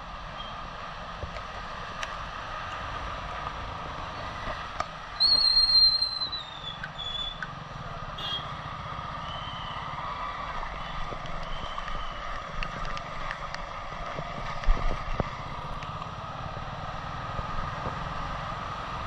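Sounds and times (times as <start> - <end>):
loud high squeal: 5.2 - 7.4
motorcycle engine at low speed: 6.9 - 19.0
wind noise on microphone: 11.0 - 15.5.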